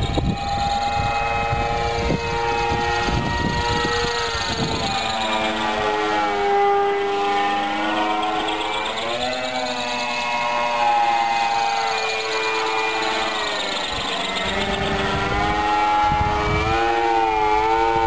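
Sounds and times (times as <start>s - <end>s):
electric motor and propeller whine: 0.0s - 18.0s.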